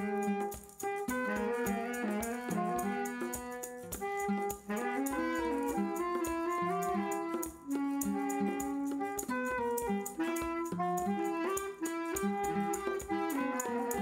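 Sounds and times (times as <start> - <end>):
maracas shaken: 0.0 - 14.0
nylon-string guitar: 0.0 - 14.0
saxophone melody: 0.0 - 14.0.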